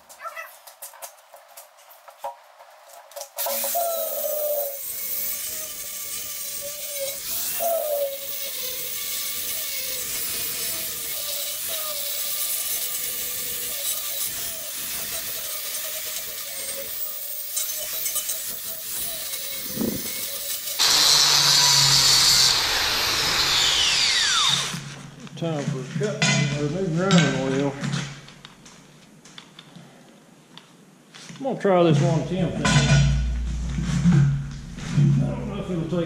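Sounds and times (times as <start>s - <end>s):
angle grinder grinding steel: 3.4s - 25.0s.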